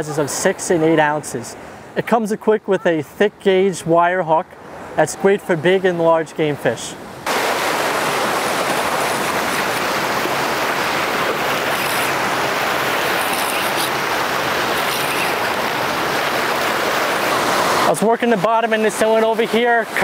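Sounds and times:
ocean surf breaking on rocks: 7.2s - 20.0s.

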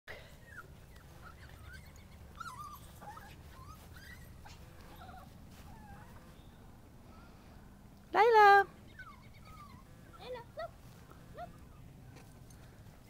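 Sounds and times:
dog whimpering: 0.4s - 6.3s, 8.8s - 10.7s.

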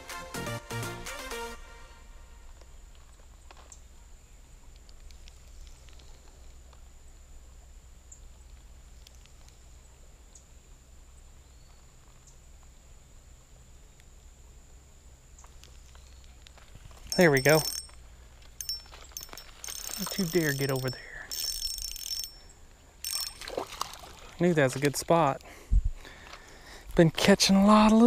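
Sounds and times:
spinning reel clicks: 17.1s - 17.9s, 18.6s - 22.4s, 23.0s - 23.4s
flowing water rumble: 23.2s - 25.4s
wind on microphone: 25.7s - 26.0s.

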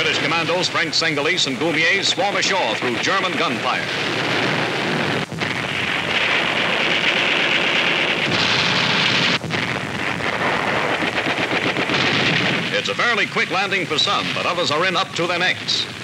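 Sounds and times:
roar of bombardment: 3.8s - 12.8s.

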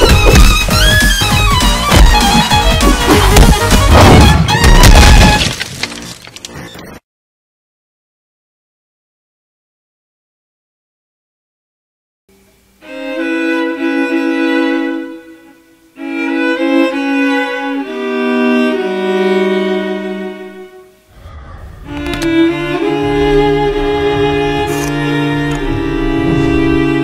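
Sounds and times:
bowed strings playing slow notes: 12.3s - 27.0s
low rumble: 21.1s - 27.0s.

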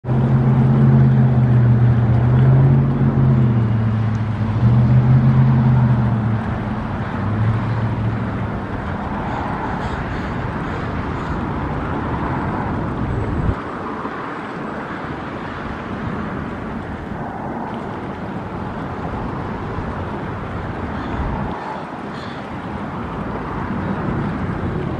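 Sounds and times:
motor engine droning: 0.0s - 10.0s
outdoor background rush: 0.0s - 24.9s.

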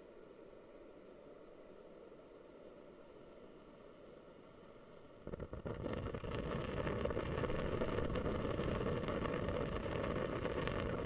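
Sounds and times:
humidifier water bubbling: 5.1s - 11.0s.

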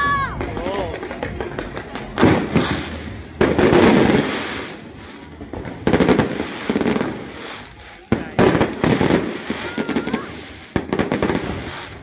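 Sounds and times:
fireworks popping in volleys: 0.3s - 12.0s
firework bang: 1.4s - 12.0s.

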